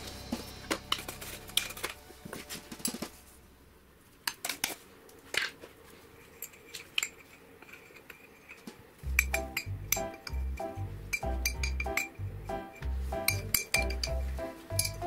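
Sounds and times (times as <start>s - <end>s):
spoon and containers clicking: 11.1s - 12.2s, 13.3s - 14.2s, 14.8s - 15.0s.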